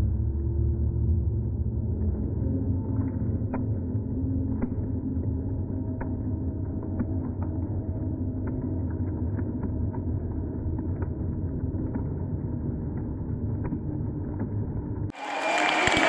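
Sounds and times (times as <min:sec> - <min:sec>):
deep slowed-down rumble: 0:00.0 - 0:15.1
crowd applause: 0:15.1 - 0:16.0.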